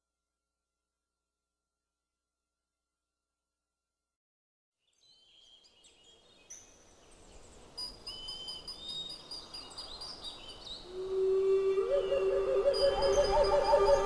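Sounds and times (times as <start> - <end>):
outdoor ambience hiss: 4.9 - 14.0
birds chirping: 11.9 - 14.0.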